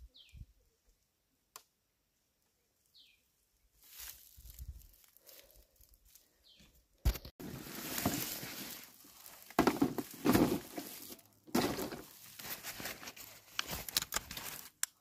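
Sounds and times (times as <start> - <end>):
dry straw crunching and rustling: 3.8 - 6.4, 7.4 - 14.8.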